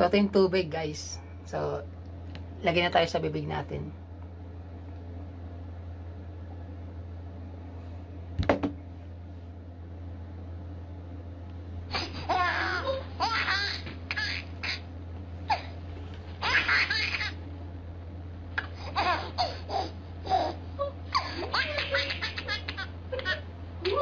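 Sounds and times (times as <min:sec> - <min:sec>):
baby laughing: 0:11.9 - 0:14.9, 0:16.4 - 0:17.4, 0:18.6 - 0:24.0.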